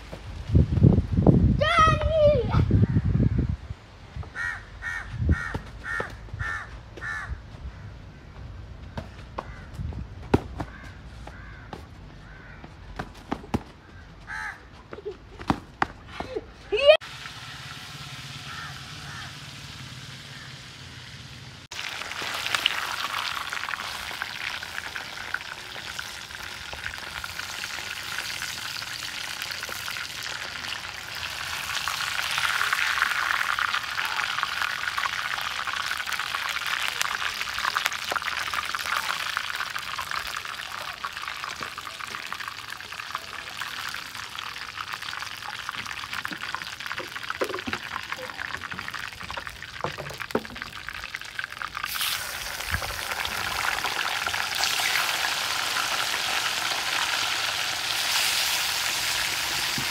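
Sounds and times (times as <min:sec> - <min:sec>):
fish frying in hot oil: 0:17.0 - 0:59.9.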